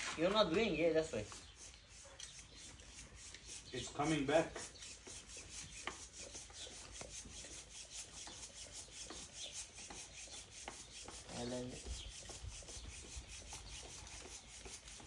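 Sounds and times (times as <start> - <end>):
hand pump air hissing: 1.1 - 15.0.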